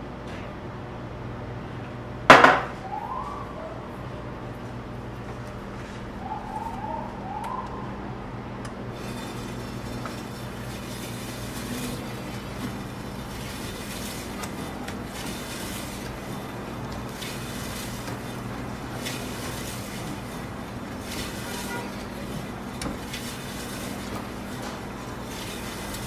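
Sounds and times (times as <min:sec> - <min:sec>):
deli slicer motor hum: 0:07.4 - 0:26.0.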